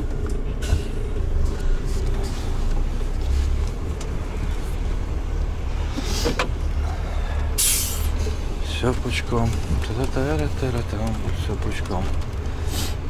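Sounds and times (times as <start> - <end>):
diesel truck engine rumbling: 0.0 - 13.0
air hiss: 7.6 - 8.3.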